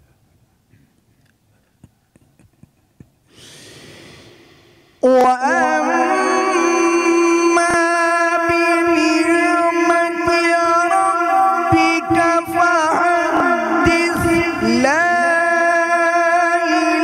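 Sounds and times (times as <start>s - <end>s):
deep breath near microphone: 3.3s - 5.0s
man chanting melodic recitation: 5.0s - 17.0s.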